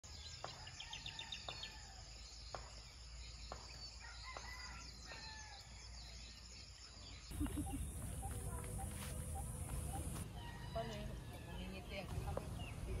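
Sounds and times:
birds calling: 0.1 - 13.0
distant rooster crowing: 0.4 - 2.2, 4.0 - 5.7, 9.3 - 11.9
chirping trill: 7.3 - 10.2.

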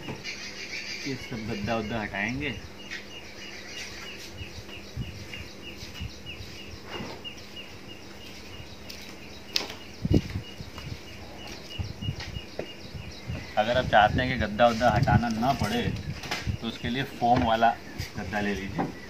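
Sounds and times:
bird chirping: 0.0 - 19.0.

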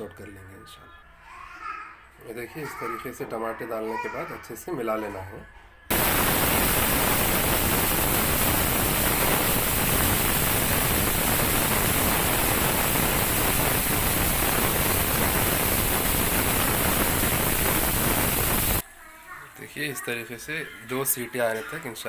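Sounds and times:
pressure cooker steam hissing: 5.9 - 18.8.

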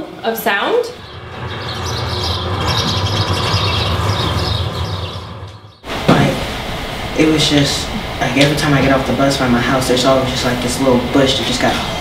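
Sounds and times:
small birds chirping and squawking: 0.9 - 5.9
steady low hum: 0.9 - 12.0.

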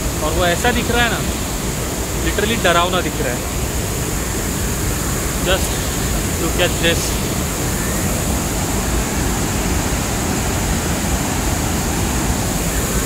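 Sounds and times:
waterfall roaring: 0.0 - 13.0.

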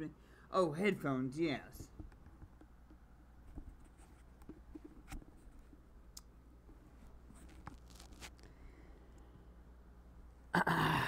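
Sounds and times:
low steady hum: 0.0 - 11.0
headset handling clicks and rustles: 7.4 - 8.5.

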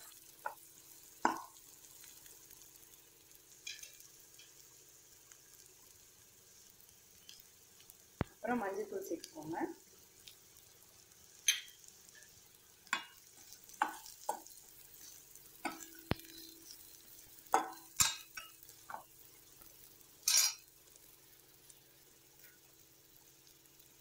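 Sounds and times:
faint frying sizzle: 0.0 - 24.0
metal spatula scraping a pan: 20.2 - 20.6.

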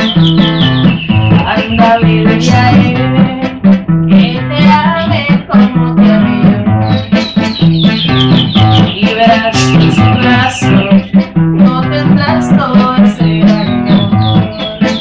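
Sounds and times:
nylon-string acoustic guitar: 0.0 - 15.0.

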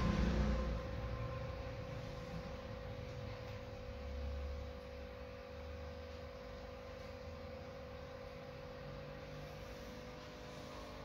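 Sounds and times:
low rumble: 0.0 - 4.2
low background hum: 0.0 - 11.0.

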